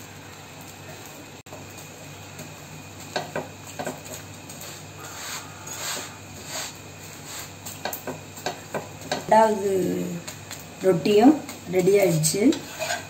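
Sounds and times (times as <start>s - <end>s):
metal spatula scraping griddle: 4.6s - 7.6s, 12.0s - 13.0s.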